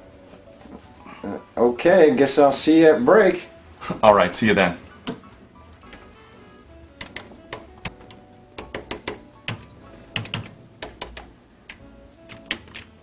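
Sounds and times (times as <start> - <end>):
faint background music: 0.0 - 13.0
computer keyboard typing: 7.0 - 12.9.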